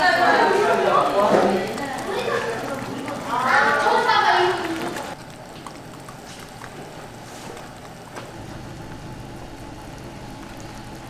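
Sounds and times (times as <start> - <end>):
egg sizzling in pan: 0.0 - 11.0.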